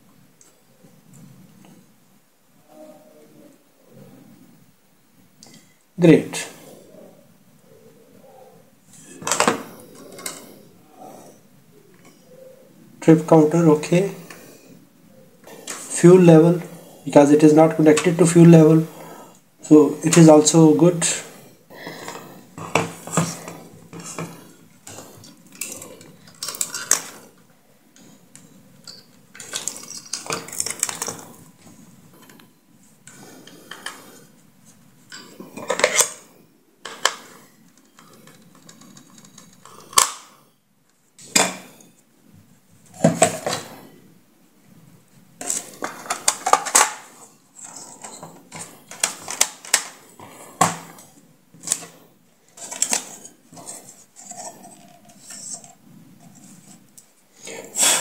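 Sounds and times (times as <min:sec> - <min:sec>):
hard plastic parts clattering: 0:08.9 - 0:10.6, 0:15.4 - 0:19.0, 0:19.6 - 0:32.4, 0:33.0 - 0:40.3, 0:41.2 - 0:41.8, 0:42.8 - 0:43.8, 0:45.4 - 0:58.0.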